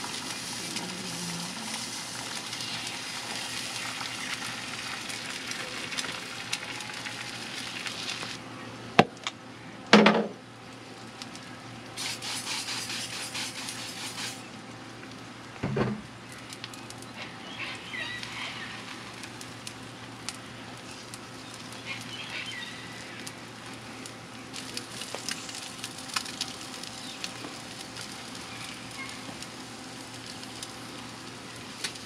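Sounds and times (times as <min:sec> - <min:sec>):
spitting crackles: 0:00.0 - 0:04.8, 0:12.0 - 0:14.4
food sizzling on hotplate: 0:00.0 - 0:08.4, 0:12.0 - 0:14.5, 0:17.1 - 0:20.2, 0:20.8 - 0:32.0.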